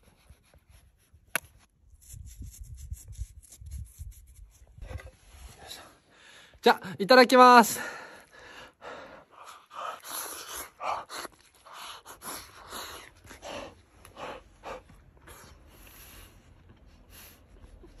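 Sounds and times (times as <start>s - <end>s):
slurping: 9.4s - 14.4s.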